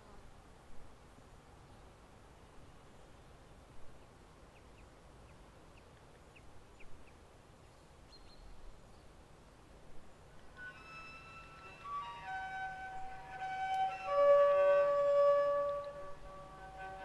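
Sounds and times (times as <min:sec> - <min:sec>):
faint outdoor hiss: 0:00.0 - 0:17.0
woodwind-like musical tones: 0:10.5 - 0:17.0
short high chirps: 0:10.6 - 0:17.0.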